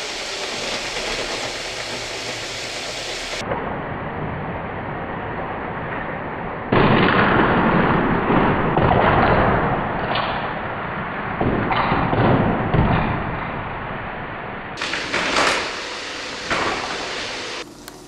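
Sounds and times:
toy trains rumbling on track: 0.0 - 3.4, 14.8 - 18.0
plastic crash clatter: 14.8 - 17.8.

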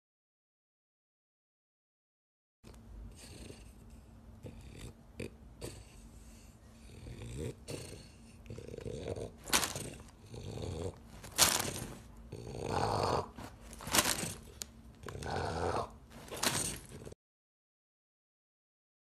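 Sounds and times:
dog snuffling and snorting: 3.1 - 17.2.

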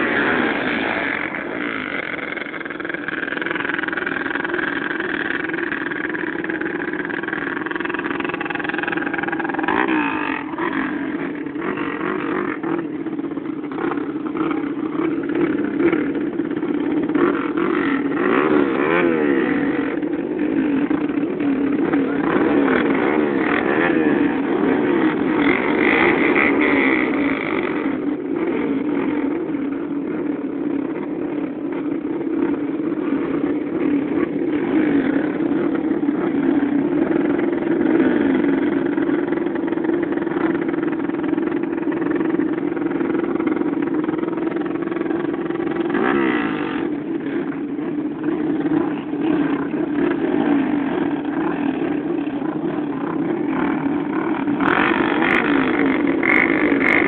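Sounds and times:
dirt bike revving sharply: 0.0 - 13.0, 13.7 - 29.4, 45.6 - 47.5, 48.3 - 57.0
dirt bike engines droning: 0.0 - 57.0.

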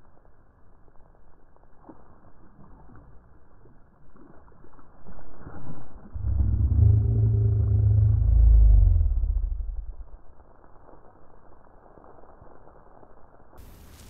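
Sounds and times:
low motor rumble: 5.9 - 10.2
steady hum: 6.2 - 10.2.

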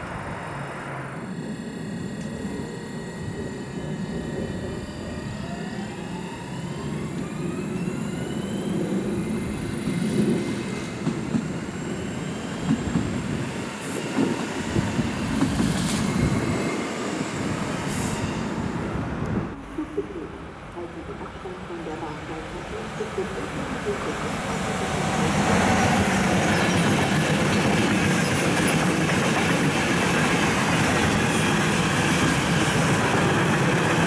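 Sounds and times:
traction motors whining: 0.0 - 34.0
rail rumble: 6.6 - 34.0.

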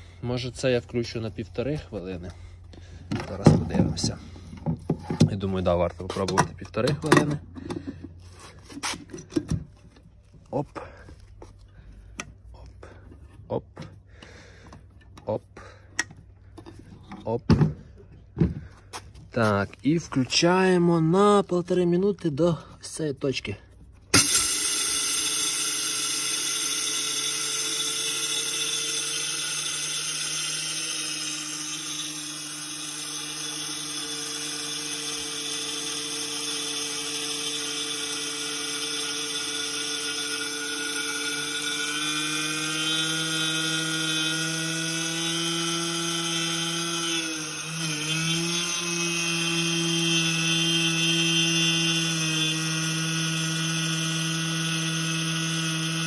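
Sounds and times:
electric grain mill grinding: 24.1 - 56.0.

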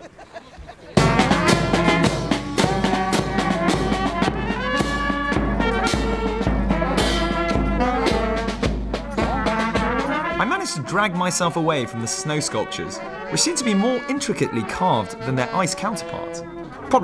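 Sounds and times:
bass drum beating: 1.0 - 10.5
marching band playing: 1.0 - 17.0.

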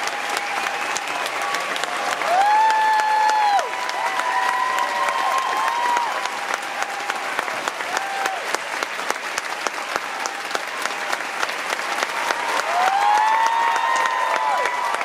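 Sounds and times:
people whooping: 0.0 - 8.6, 12.1 - 15.0
audience clapping: 0.0 - 15.0.

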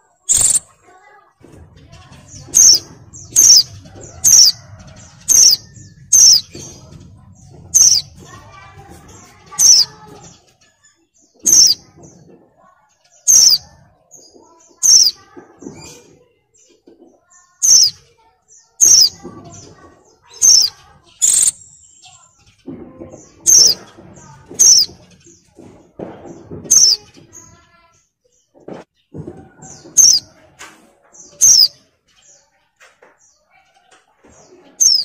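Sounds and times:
bird giving high-pitched calls: 0.3 - 0.7, 2.5 - 3.7, 5.2 - 6.5, 7.8 - 8.1, 9.5 - 10.0, 11.4 - 11.8, 13.3 - 13.7, 14.8 - 15.2, 17.6 - 18.0, 18.8 - 19.2, 20.2 - 21.8, 23.4 - 23.8, 24.6 - 24.9, 26.7 - 27.0, 29.9 - 30.3, 31.3 - 31.8.

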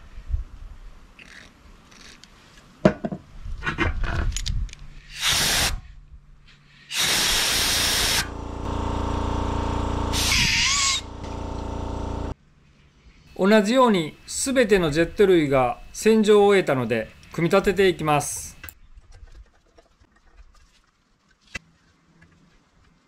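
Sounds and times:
compressed air blast hissing: 5.1 - 5.9, 6.9 - 8.3, 10.1 - 11.1
steady low hum: 7.6 - 12.4.

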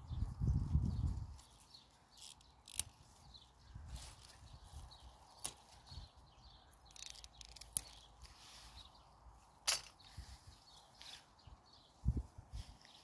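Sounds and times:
pea vines rustling: 0.1 - 13.0.

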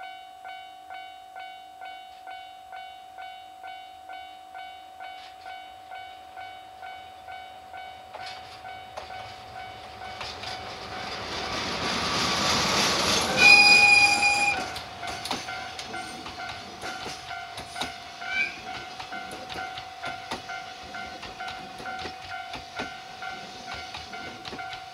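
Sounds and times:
locomotive engine and wheels: 8.0 - 24.9
wagons clicking over rail joints: 8.2 - 24.9
train horn blast: 13.2 - 14.8.

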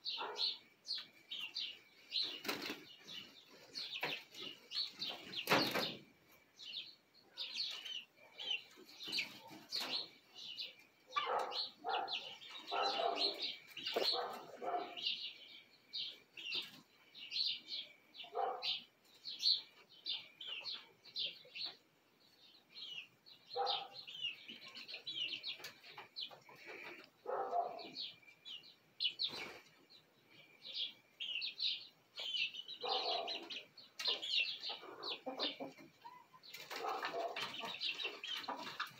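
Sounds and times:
chicks peeping: 0.0 - 38.9
chicken clucking: 7.5 - 15.1, 32.2 - 38.9.

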